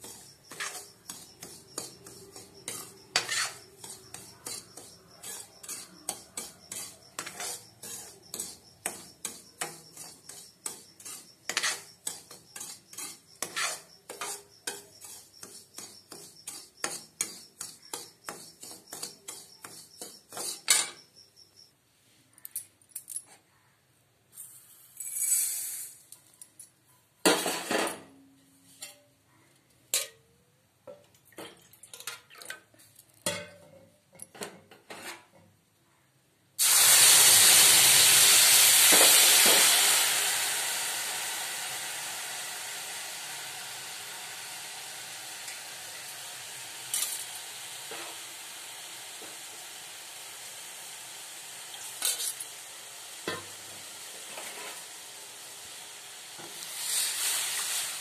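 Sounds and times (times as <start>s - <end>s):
liquid sizzling in hot pan: 0.0s - 21.2s, 24.5s - 26.0s, 36.6s - 58.0s
metal spoon scraping pan: 0.0s - 21.2s, 33.2s - 35.4s.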